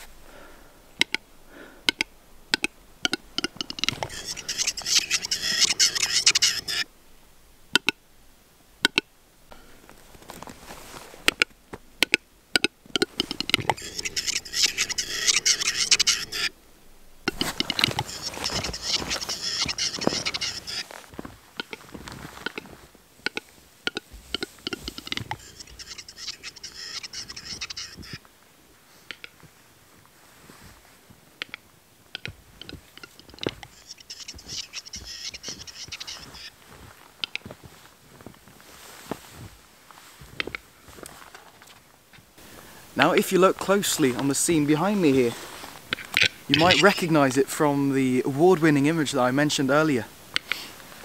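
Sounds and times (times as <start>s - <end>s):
sharp clicks: 1.0s - 1.2s, 1.8s - 6.8s, 8.8s - 9.1s, 11.3s - 16.5s, 29.1s - 29.4s, 50.3s - 50.6s
footsteps crunching in snow: 9.6s - 11.8s, 17.3s - 25.8s, 28.0s - 31.2s, 32.3s - 47.0s.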